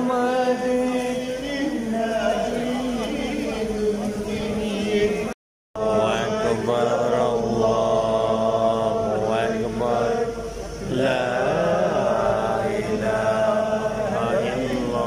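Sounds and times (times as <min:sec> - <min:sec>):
men chanting melodically: 0:00.0 - 0:15.0.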